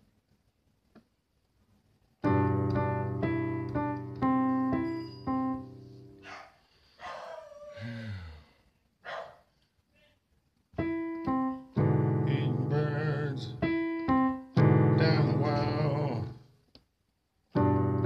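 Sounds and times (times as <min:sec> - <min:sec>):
electronic keyboard music: 0:02.2 - 0:06.2, 0:10.8 - 0:16.4, 0:17.6 - 0:18.0.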